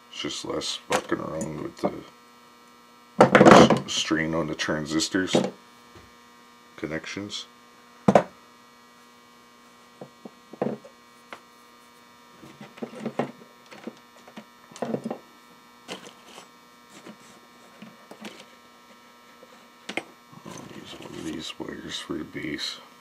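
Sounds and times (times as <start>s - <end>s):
steady electrical hum: 0.0s - 23.0s.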